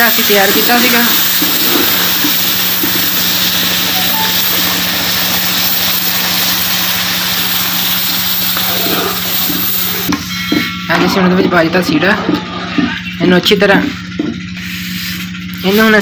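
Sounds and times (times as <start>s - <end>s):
syrup hissing and sizzling: 0.0s - 16.0s.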